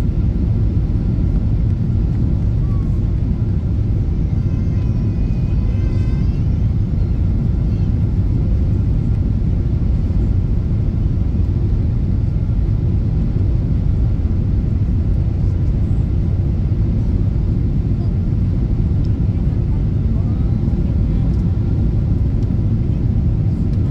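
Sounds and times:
airplane cabin engine rumble: 0.0 - 23.9.

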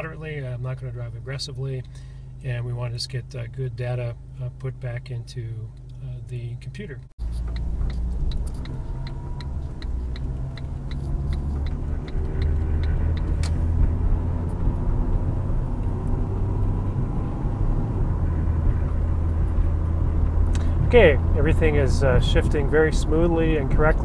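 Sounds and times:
engine and road noise rumble: 0.0 - 24.0
light rapid ticking: 7.2 - 13.6.

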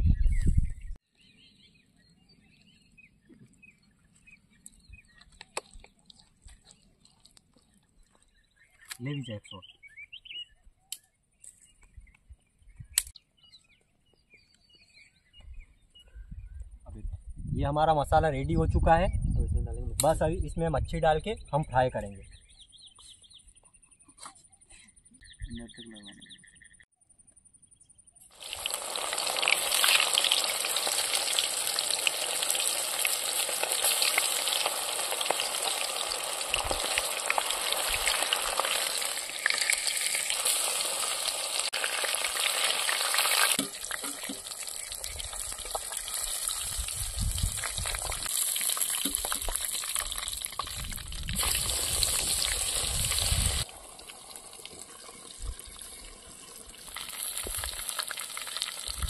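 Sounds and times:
fish deep-frying in oil: 28.3 - 59.0.

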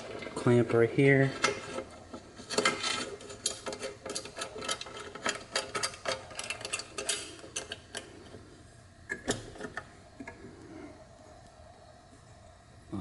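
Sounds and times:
metallic clamp clicks and rattles: 2.4 - 8.1.

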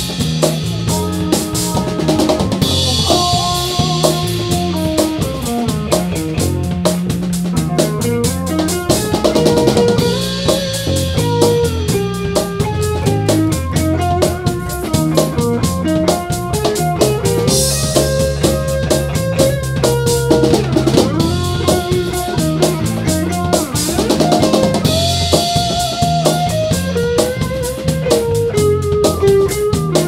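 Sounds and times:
drum kit beat: 0.0 - 30.0
electric bass line: 0.0 - 30.0
electric guitar lead with vibrato: 0.0 - 30.0.

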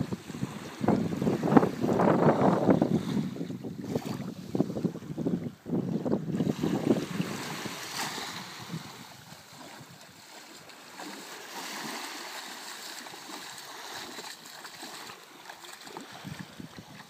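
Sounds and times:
wind on microphone: 0.0 - 12.1, 15.8 - 17.0
small waves lapping: 0.0 - 17.0
legs splashing through water: 7.2 - 17.0.

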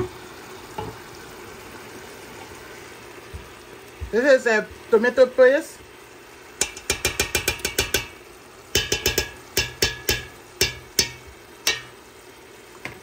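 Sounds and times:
metal spoon clinking against pot: 6.6 - 8.2, 8.8 - 12.0.

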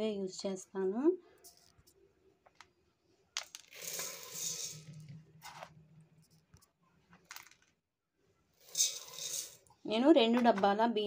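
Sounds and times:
grain rustling: 3.6 - 6.6, 8.6 - 9.6
rice grains poured into bowl: 3.7 - 5.7, 8.6 - 9.6.

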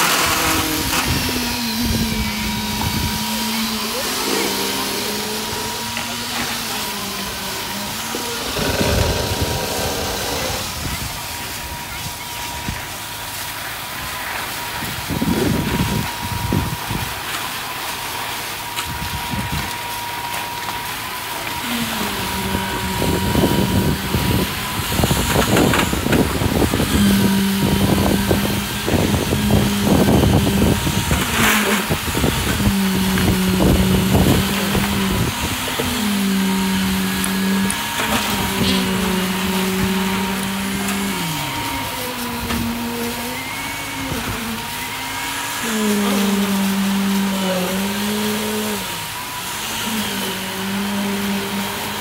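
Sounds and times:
concrete pump humming: 0.0 - 52.0.

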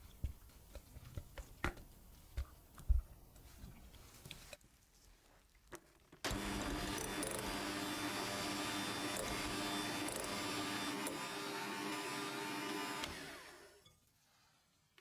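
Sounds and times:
electric hand mixer running: 6.3 - 13.8.

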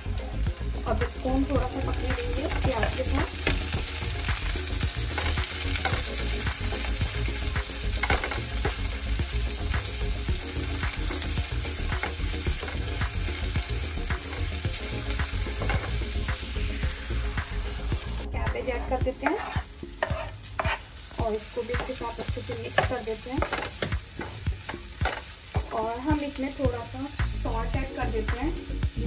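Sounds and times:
vegetables sizzling in hot oil: 0.0 - 29.0
wooden spatula tapping and scraping pan: 18.6 - 26.2.

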